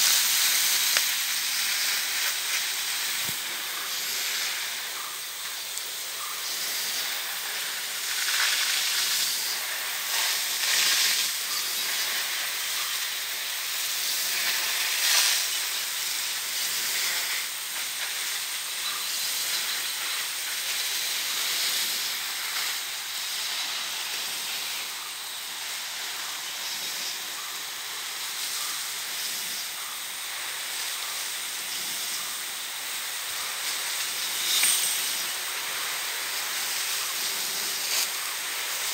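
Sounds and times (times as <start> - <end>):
spray raining through leaves: 0.0 - 38.9
sprinkler water jet hissing: 0.0 - 38.9.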